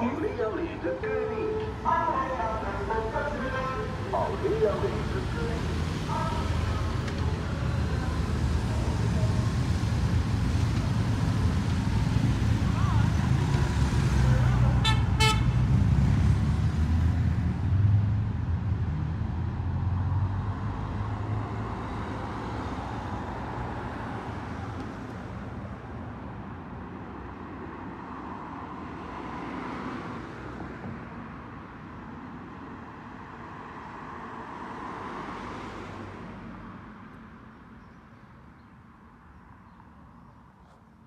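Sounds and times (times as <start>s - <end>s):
engine low rumble: 0.0s - 25.9s
vehicles passing: 0.0s - 41.0s.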